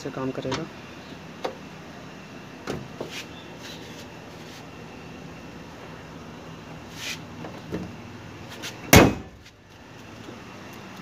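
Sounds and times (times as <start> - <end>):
car bonnet slamming shut: 2.6 - 3.0, 8.8 - 9.4
light knocks on car bonnet: 8.9 - 9.4.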